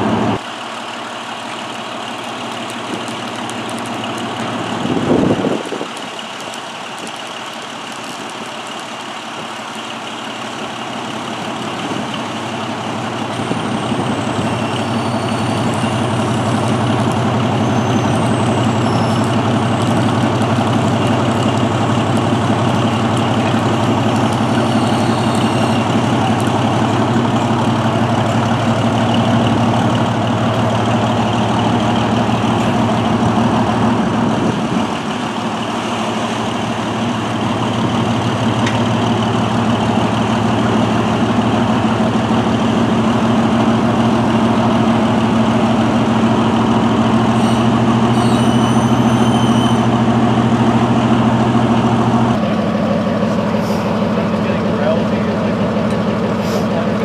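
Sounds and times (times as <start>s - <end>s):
crawler crane engine running: 0.0s - 57.0s.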